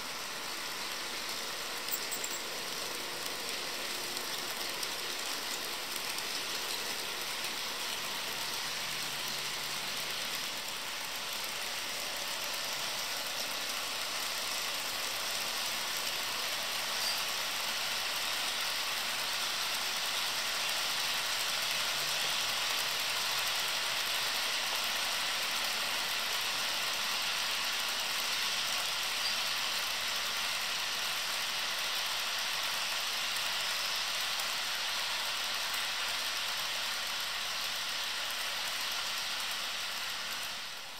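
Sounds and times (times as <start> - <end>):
model train motors whirring: 0.0 - 40.9
wheels hissing on rails: 0.0 - 40.9.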